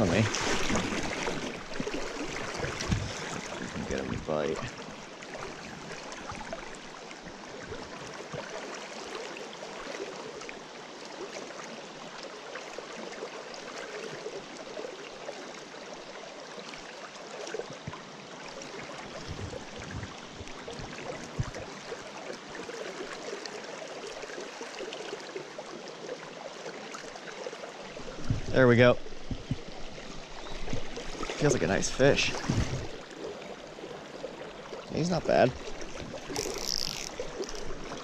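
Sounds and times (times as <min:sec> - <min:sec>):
fast creek current rushing: 0:00.0 - 0:17.6, 0:18.2 - 0:38.0
soft low bumps: 0:19.2 - 0:21.7, 0:28.1 - 0:31.0.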